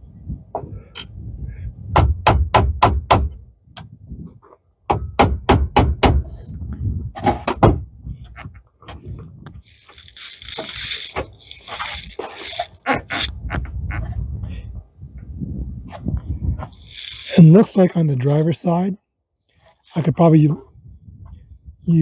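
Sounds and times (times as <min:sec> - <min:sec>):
rustling handling noise: 0:09.6 - 0:13.3, 0:16.6 - 0:18.4.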